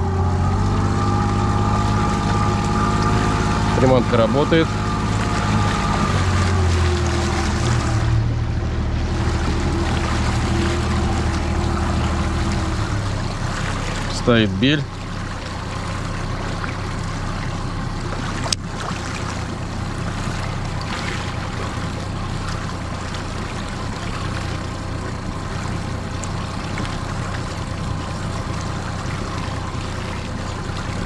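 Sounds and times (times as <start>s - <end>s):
outboard motor running: 0.0s - 31.0s.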